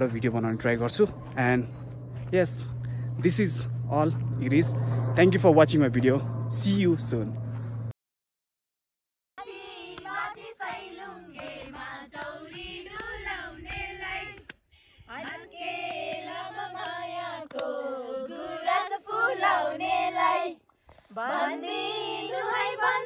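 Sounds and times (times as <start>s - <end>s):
women singing: 9.4s - 14.5s, 15.1s - 23.0s
hand claps: 9.9s - 14.6s, 15.2s - 17.8s.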